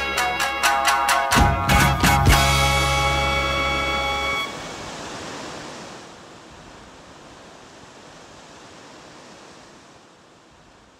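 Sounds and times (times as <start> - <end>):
music chord: 0.0 - 4.5
waves washing onto sand: 3.0 - 10.9.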